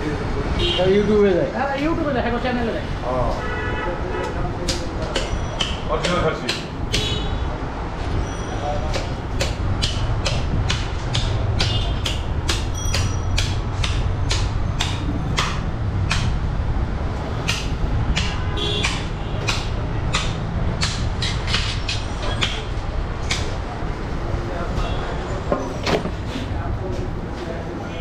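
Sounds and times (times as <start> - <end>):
blade knocking on meat: 8.9 - 16.4, 17.4 - 22.6.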